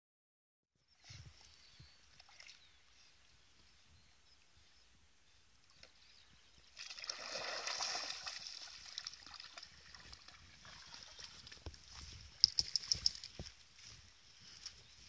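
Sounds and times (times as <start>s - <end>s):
dog splashing through water: 6.8s - 11.6s
sharp clicks: 12.4s - 13.3s.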